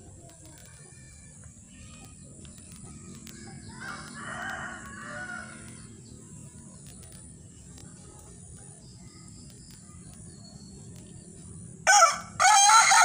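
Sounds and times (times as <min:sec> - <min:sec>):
rooster crowing: 0:03.7 - 0:05.7, 0:11.9 - 0:13.0.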